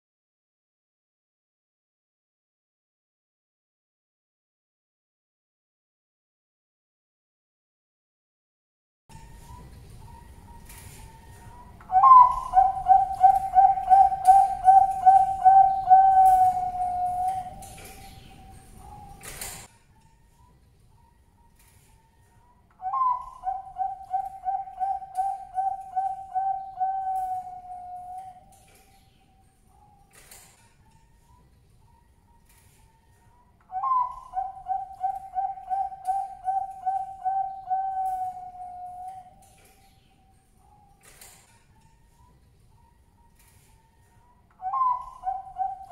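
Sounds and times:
dove cooing: 11.9s - 19.2s, 22.8s - 28.5s, 33.7s - 39.4s, 44.6s - 45.9s.

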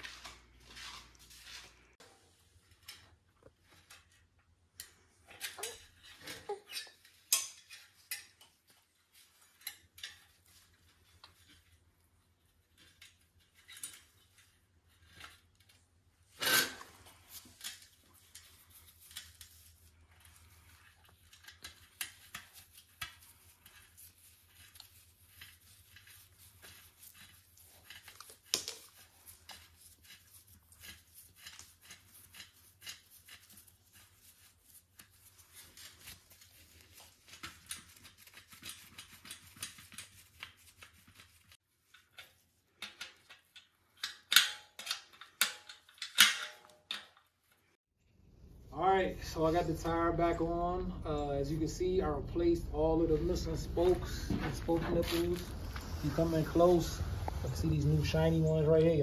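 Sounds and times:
metal spokes clicking and rattling: 2.7s - 11.8s, 17.3s - 34.5s, 35.2s - 47.3s.

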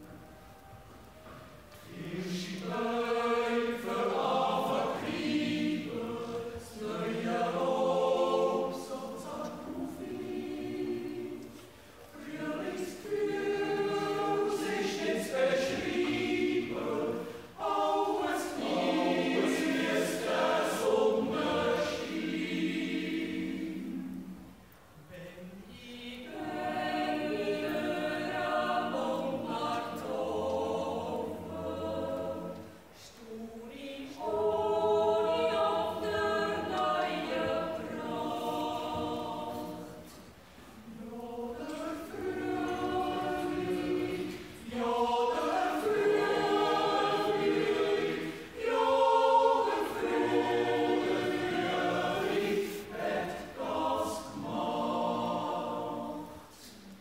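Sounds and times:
choir yodeling a cappella: 0.0s - 57.0s.

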